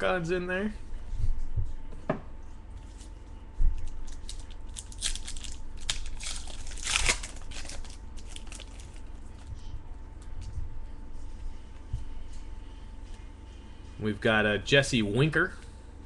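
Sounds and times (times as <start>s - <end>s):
foil wrappers crinkling and rustling: 3.0s - 9.5s.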